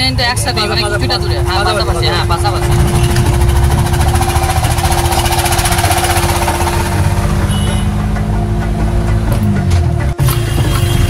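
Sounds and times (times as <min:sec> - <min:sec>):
steady hum: 0:00.0 - 0:10.8
engine rumbling with rattle: 0:00.0 - 0:11.0.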